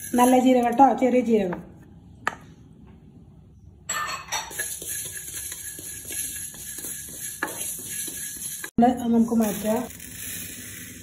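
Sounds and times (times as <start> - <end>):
seeds rattling in metal pan: 0.0 - 1.0, 4.5 - 11.0.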